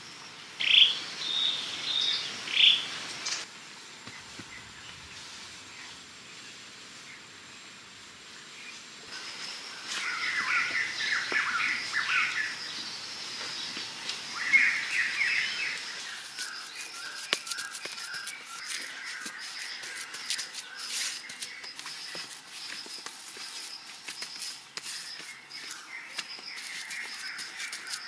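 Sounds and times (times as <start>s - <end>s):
steady high-pitched whine: 3.4s - 28.0s
birds chirping harshly: 9.8s - 28.0s.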